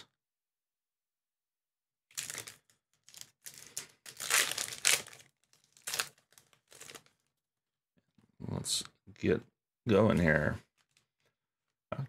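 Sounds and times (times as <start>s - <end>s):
card pack wrapper crinkling: 2.1s - 7.3s.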